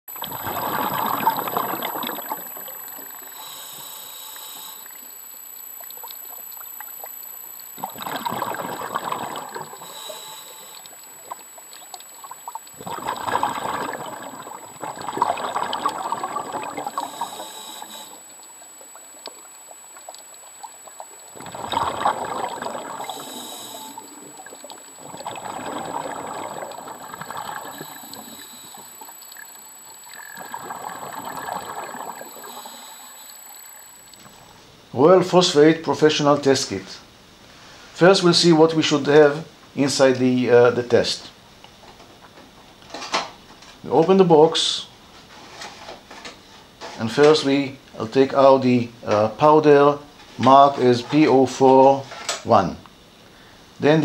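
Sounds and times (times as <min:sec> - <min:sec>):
rushing trickling water: 0:00.1 - 0:03.8, 0:04.8 - 0:34.2
faint high whine: 0:00.1 - 0:54.0.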